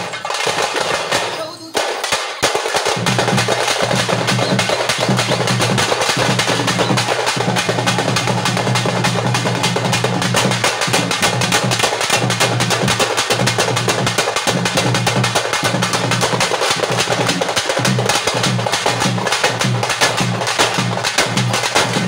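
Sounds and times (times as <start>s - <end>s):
frame drums beaten with sticks: 0.0s - 22.0s.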